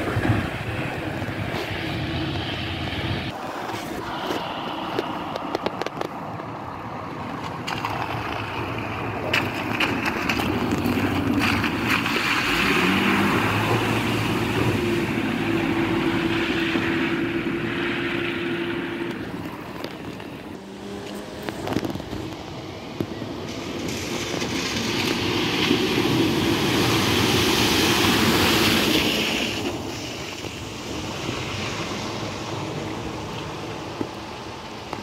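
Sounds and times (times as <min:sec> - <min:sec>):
hiss of water from wheels: 0:23.4 - 0:35.0.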